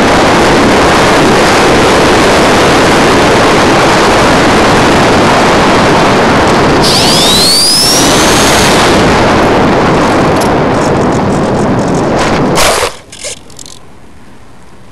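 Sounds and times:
wind buffeting microphone: 0.0s - 14.0s
thin rising whistle: 6.8s - 8.8s.

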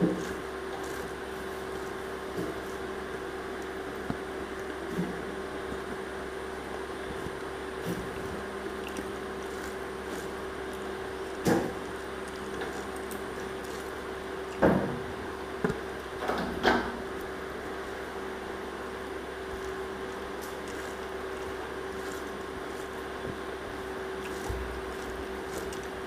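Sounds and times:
steady background hum: 0.0s - 26.0s
wet squishes and smacks of eating: 6.7s - 14.7s, 19.0s - 26.0s.

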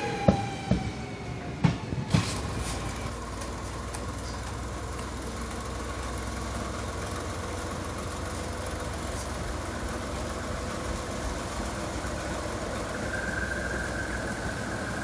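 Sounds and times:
locomotive engine rumbling: 0.0s - 15.0s
thin high squeal: 12.8s - 15.0s.

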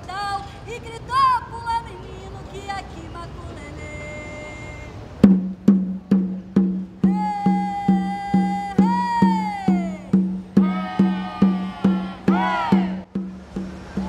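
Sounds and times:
woman singing long calls: 0.0s - 5.1s, 7.0s - 13.0s
hand drum beat: 5.2s - 14.0s.

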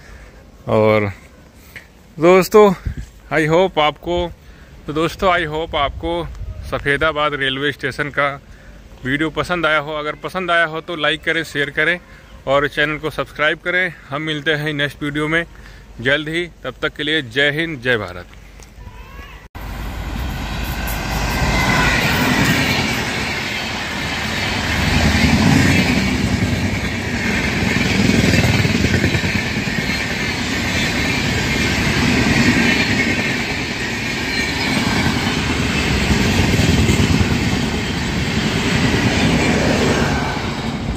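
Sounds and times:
train wheels rumbling on rails: 19.6s - 40.9s.

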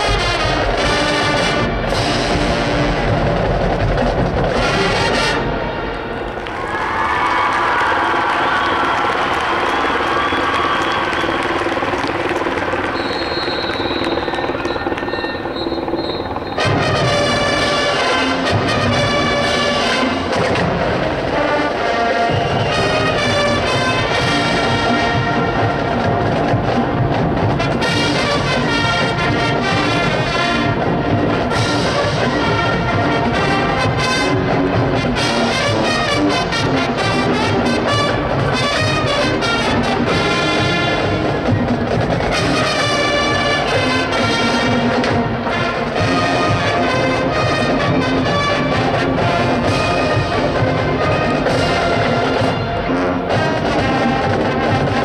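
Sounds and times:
marching band with brass: 0.0s - 55.0s.

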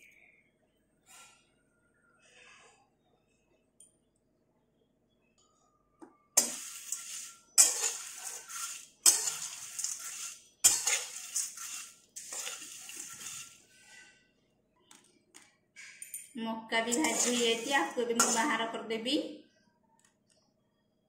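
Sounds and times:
rustle of corn flakes: 6.4s - 13.9s, 17.0s - 18.5s
metal spatula scraping corn flakes: 6.4s - 14.2s, 16.8s - 18.8s.

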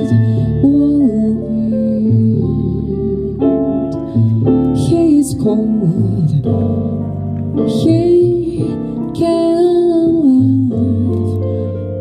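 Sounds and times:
woman singing with vibrato: 0.0s - 3.5s, 4.8s - 6.6s, 7.7s - 11.4s
double bass: 0.0s - 12.0s
guitar: 0.0s - 12.0s.

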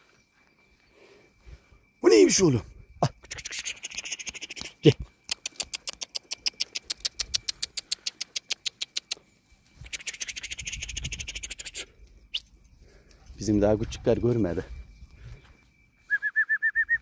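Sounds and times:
fast sharp clicks: 3.2s - 9.2s, 9.9s - 11.9s.

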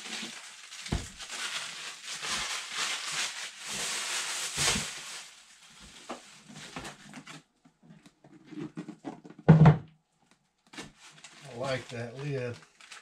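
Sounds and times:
plastic packaging crinkling: 0.0s - 7.3s, 11.0s - 13.0s.

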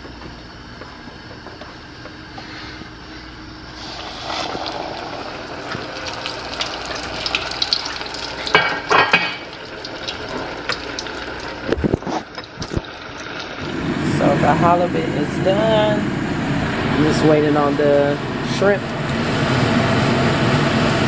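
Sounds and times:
oil sizzling and crackling: 3.8s - 13.9s.

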